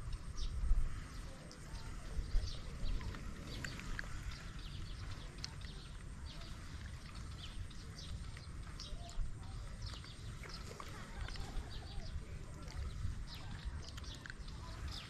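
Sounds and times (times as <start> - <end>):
wind rumble on microphone: 0.0 - 15.0.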